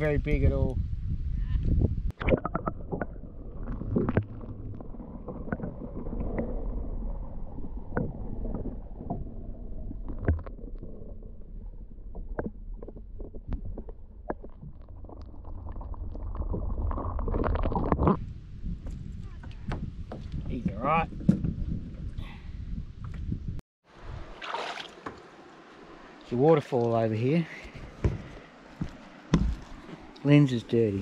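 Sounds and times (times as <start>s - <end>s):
underwater rumbling and gurgling: 1.1s - 22.2s.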